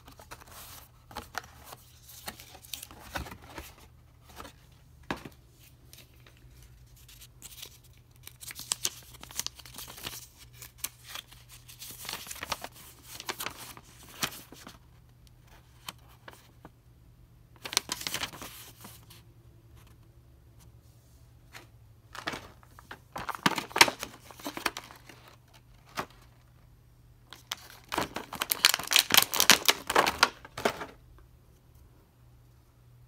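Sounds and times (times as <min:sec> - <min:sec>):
paper rustling and crinkling: 0:00.0 - 0:14.8, 0:17.6 - 0:19.2, 0:21.5 - 0:26.4, 0:27.3 - 0:31.0.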